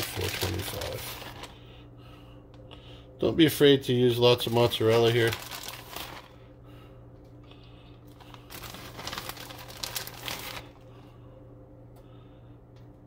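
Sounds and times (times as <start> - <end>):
plastic bag crinkling: 0.0 - 1.7, 4.3 - 6.5, 8.0 - 10.9
steady low hum: 0.0 - 13.0.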